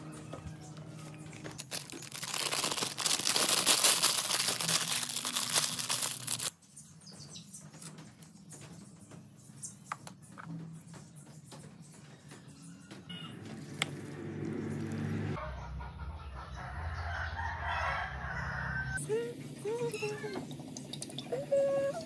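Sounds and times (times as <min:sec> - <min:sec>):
plastic packet crinkling: 0:01.3 - 0:06.5.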